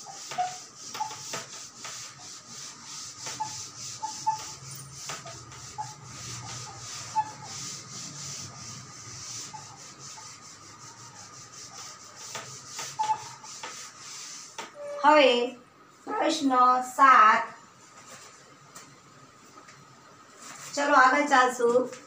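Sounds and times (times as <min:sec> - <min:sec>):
cloth wiping a blackboard: 0:00.0 - 0:15.2, 0:17.8 - 0:18.6, 0:20.3 - 0:22.0.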